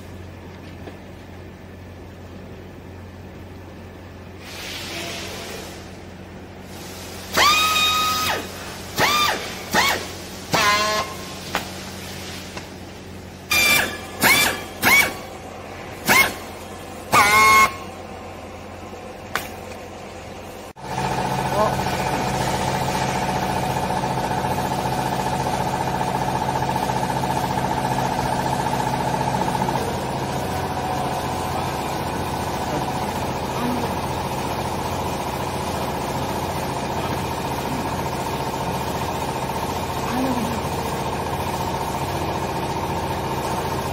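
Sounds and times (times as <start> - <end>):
machinery humming: 0.0 - 43.9
constant high whine: 7.3 - 43.1
strapping tool motor whining: 13.5 - 15.3, 17.1 - 17.9.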